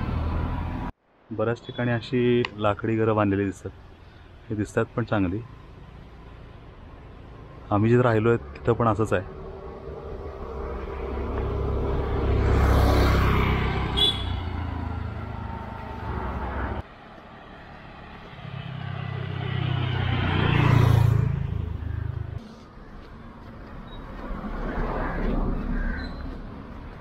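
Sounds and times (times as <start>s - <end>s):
vehicles passing by: 0.0s - 27.0s.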